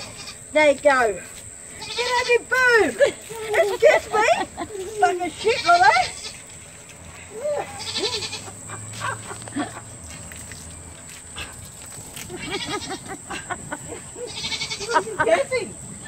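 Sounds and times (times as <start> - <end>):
young goat bleating: 0.0 - 0.4, 1.7 - 2.6, 3.3 - 6.5, 7.3 - 8.6, 12.2 - 13.1, 14.2 - 15.4
garden hose spraying water: 2.3 - 8.0, 8.6 - 15.7.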